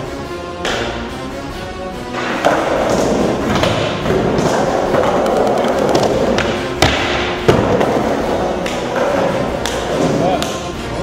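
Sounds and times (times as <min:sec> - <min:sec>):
skateboard wheels rolling on concrete: 0:02.0 - 0:11.0
skateboard clacks: 0:02.1 - 0:10.7.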